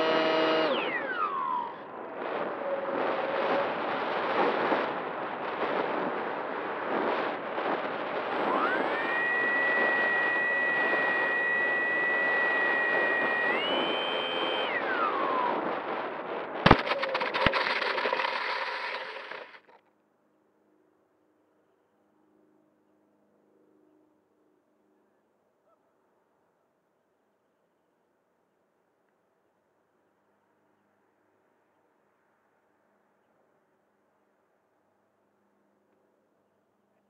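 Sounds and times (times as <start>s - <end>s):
electric motor whining: 0.0s - 2.1s, 8.2s - 15.8s, 16.7s - 19.8s
wind rush over microphone: 1.8s - 19.6s
model skidding on dirt: 16.7s - 19.8s.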